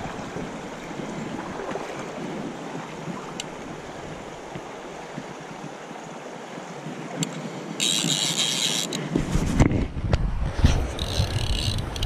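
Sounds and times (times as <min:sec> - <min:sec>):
wind rumble on microphone: 0:00.0 - 0:05.8, 0:09.0 - 0:12.0
river water running: 0:00.0 - 0:09.5
fly reel ratchet buzzing: 0:07.2 - 0:09.0, 0:11.0 - 0:12.0.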